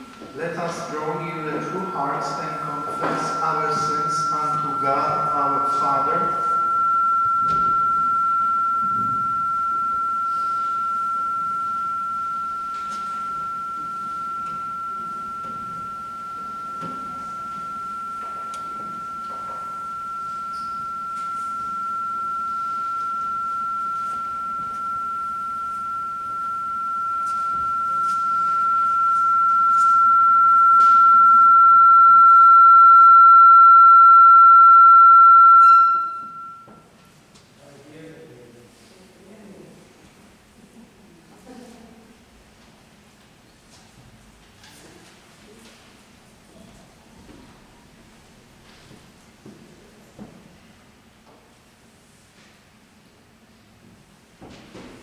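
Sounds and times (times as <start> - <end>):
high-pitched electronic tone: 0.0 - 37.0.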